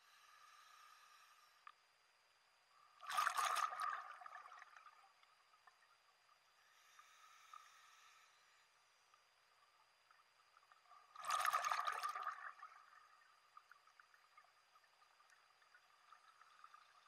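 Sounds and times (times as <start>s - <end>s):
hissing regulator inhale: 0.0s - 1.8s, 6.6s - 9.1s
rush of exhaled bubbles: 3.0s - 4.9s, 11.1s - 13.0s.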